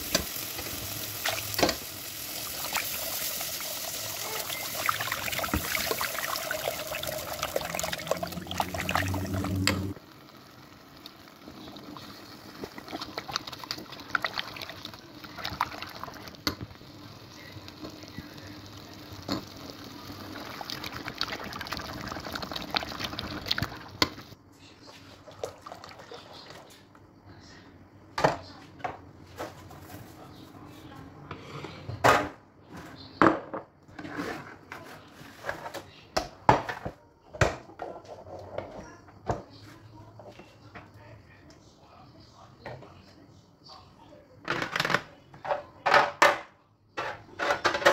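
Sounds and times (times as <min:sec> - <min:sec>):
rushing hiss of pouring liquid: 0:00.0 - 0:17.0.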